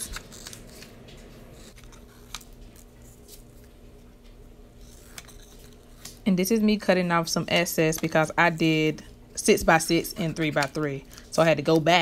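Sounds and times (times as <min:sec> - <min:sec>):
scissors cutting paper: 0:00.0 - 0:03.7, 0:04.8 - 0:06.2.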